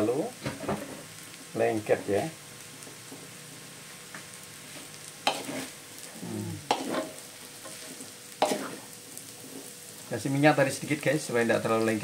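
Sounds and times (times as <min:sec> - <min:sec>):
noodles sizzling in wok: 0:00.0 - 0:12.0
spatula scraping wok: 0:04.5 - 0:10.0.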